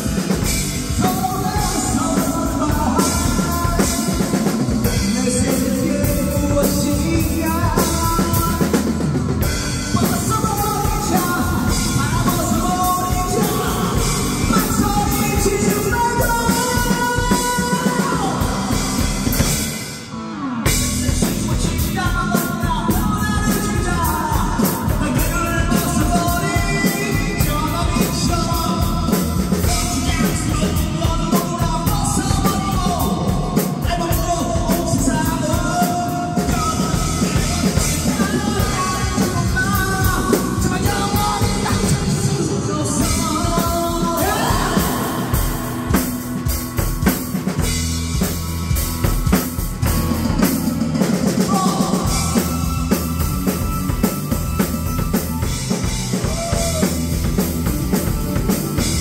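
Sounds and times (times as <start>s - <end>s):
acoustic drum kit: 0.0s - 59.0s
karaoke backing track: 0.0s - 59.0s
man singing into microphone: 1.0s - 19.2s, 20.7s - 46.5s, 50.1s - 53.2s.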